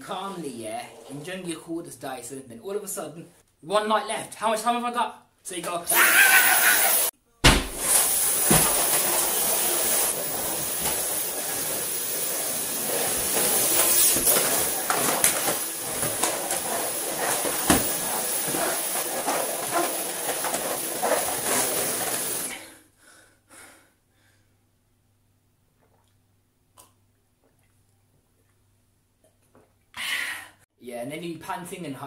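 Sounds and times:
stick vacuum hissing: 0:05.9 - 0:22.6
vacuum knocking and clattering: 0:07.5 - 0:22.5.

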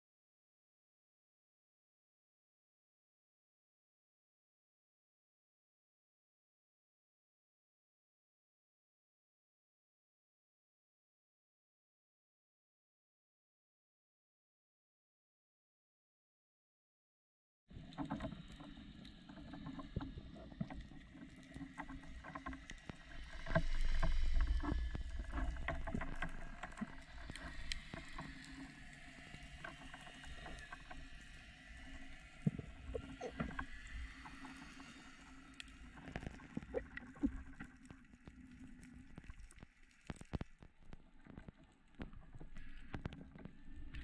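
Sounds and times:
low underwater hum: 0:17.7 - 0:44.0
underwater crackle of clicks: 0:17.8 - 0:44.0.

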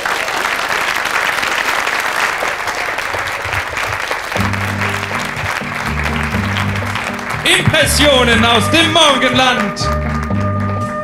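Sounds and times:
audience applauding: 0:00.0 - 0:11.0
music with low bass notes: 0:04.4 - 0:11.0.

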